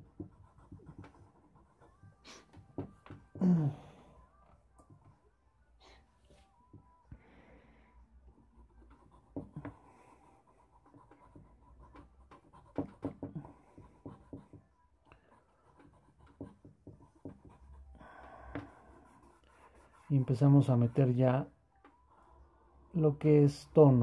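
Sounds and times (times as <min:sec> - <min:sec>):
charcoal scratching on paper: 0:00.0 - 0:02.6, 0:08.4 - 0:21.2.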